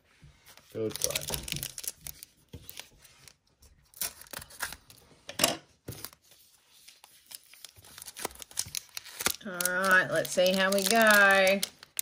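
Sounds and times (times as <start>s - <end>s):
foil wrapper crinkling: 0.8s - 5.0s, 6.9s - 12.0s.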